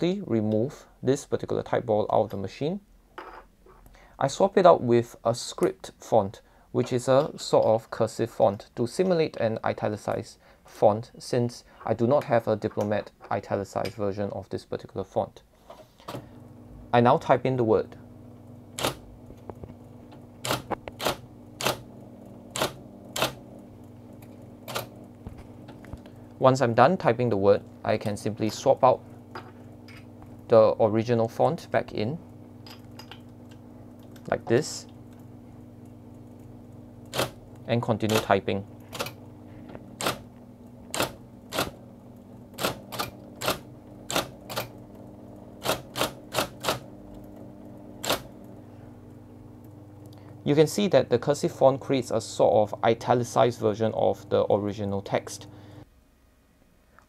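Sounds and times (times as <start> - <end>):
typewriter motor hum: 18.0 - 26.4, 27.6 - 50.9
typewriter keystroke clacks: 20.4 - 21.8, 37.1 - 37.4, 38.9 - 39.2, 40.0 - 40.2, 40.9 - 41.8, 42.6 - 44.7, 45.6 - 46.8, 48.0 - 48.3
typewriter key strikes: 40.9 - 41.8, 45.6 - 46.8, 48.0 - 48.3.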